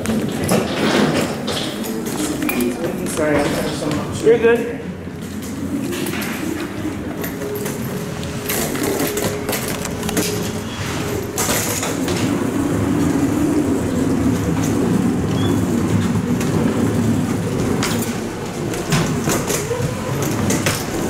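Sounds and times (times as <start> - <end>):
footsteps: 0.0 - 13.3
wheeled suitcase rolling: 0.0 - 21.0.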